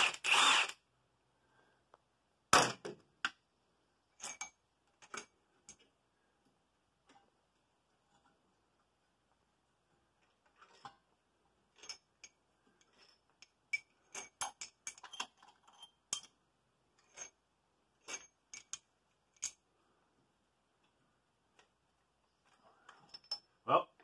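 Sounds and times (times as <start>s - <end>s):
metal valve parts clinking: 4.2s - 5.9s, 11.7s - 16.4s, 18.0s - 19.6s, 22.4s - 23.6s.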